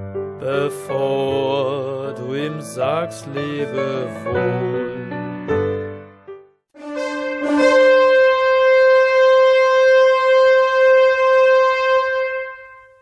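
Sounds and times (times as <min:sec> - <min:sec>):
long horn call: 0:06.8 - 0:13.0.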